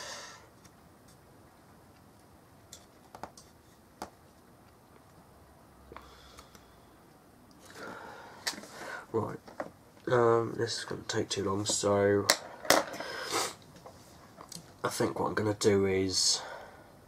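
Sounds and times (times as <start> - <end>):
short hiss: 13.0 - 13.6.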